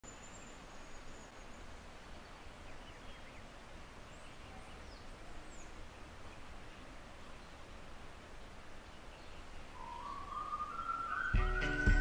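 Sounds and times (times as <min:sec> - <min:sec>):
steady outdoor hiss: 0:00.0 - 0:12.0
bird chirps: 0:08.9 - 0:12.0
high whistled glides: 0:09.8 - 0:12.0.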